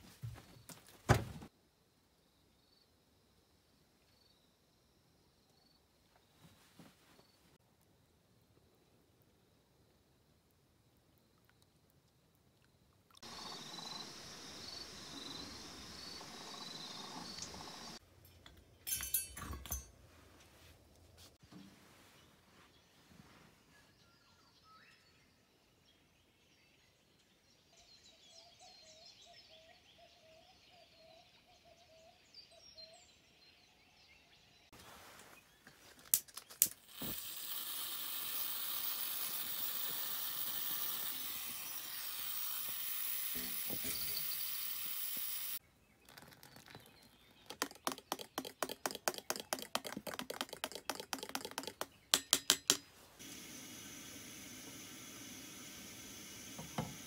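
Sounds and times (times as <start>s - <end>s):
camp stove hissing: 13.2s - 18.0s, 36.7s - 45.6s, 53.1s - 57.0s
water pouring into a bottle: 36.9s - 51.8s
quick clicks: 47.5s - 52.8s.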